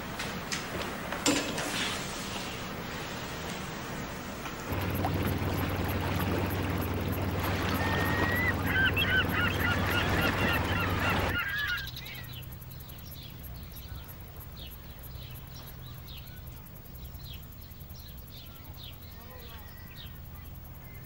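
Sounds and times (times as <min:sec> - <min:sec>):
gulls calling: 0:02.3 - 0:21.0
boat engine drone: 0:02.4 - 0:21.0
faint high bird chirps: 0:06.9 - 0:21.0.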